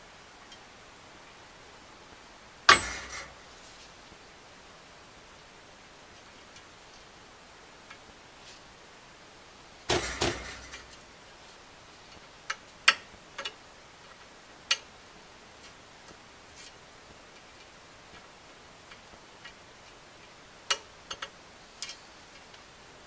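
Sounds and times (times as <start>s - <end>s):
metal knocks: 2.7s - 3.4s, 9.9s - 10.9s.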